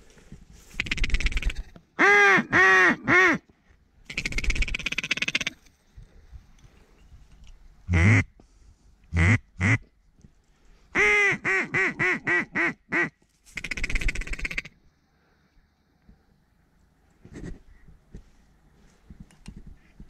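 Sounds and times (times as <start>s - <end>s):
duck rapid chattering: 0.8s - 1.7s
duck quacking: 7.9s - 8.3s.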